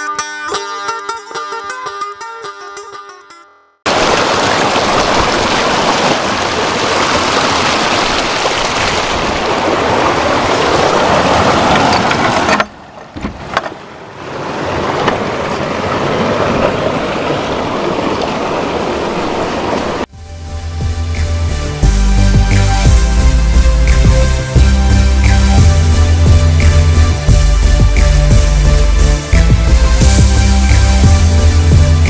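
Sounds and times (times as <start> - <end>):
stream rushing over rocks: 3.9 - 12.6, 14.0 - 20.1.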